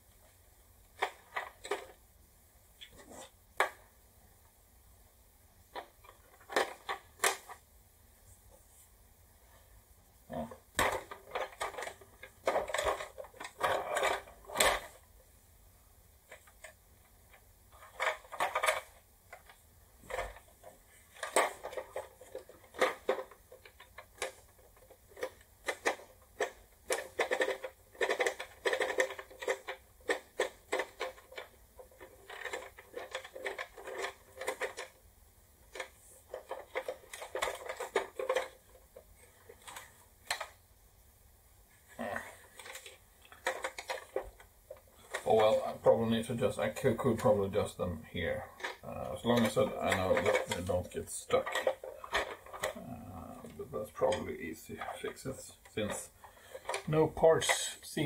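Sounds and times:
plastic toy parts clicking: 0:00.9 - 0:02.0, 0:05.7 - 0:07.6, 0:10.4 - 0:15.0, 0:16.3 - 0:35.0, 0:35.6 - 0:40.6, 0:42.2 - 0:46.0, 0:48.6 - 0:57.9.

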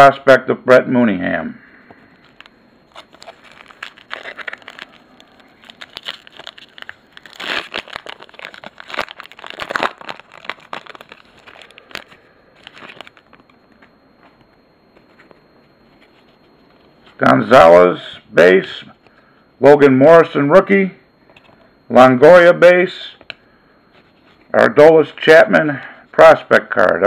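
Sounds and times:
foil wrapper crinkling and tearing: 0:02.2 - 0:13.5.

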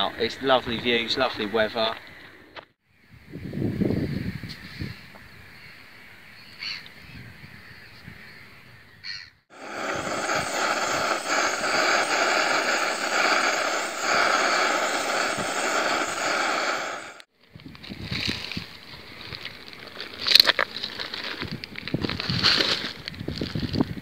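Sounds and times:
faint outdoor ambience: 0:09.5 - 0:17.3.

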